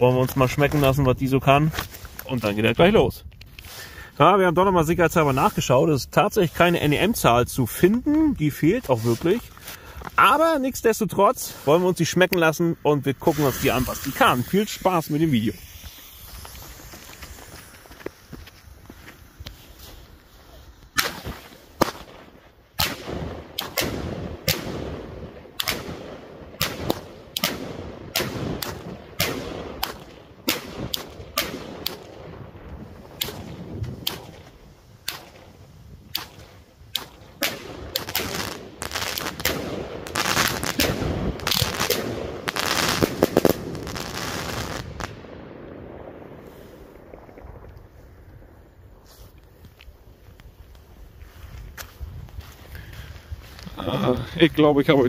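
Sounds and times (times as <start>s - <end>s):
firework shots bursting: 13.3s - 19.6s, 20.8s - 47.3s.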